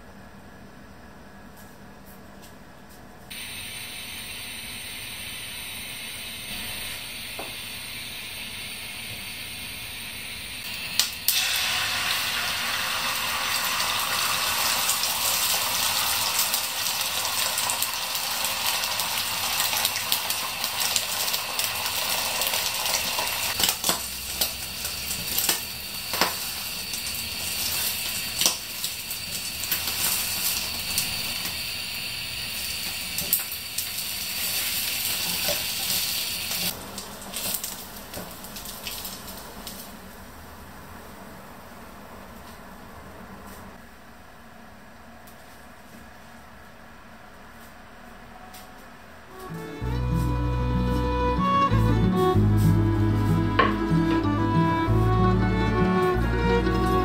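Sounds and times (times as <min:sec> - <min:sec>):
egg sizzling in a pan: 0:03.3 - 0:41.4.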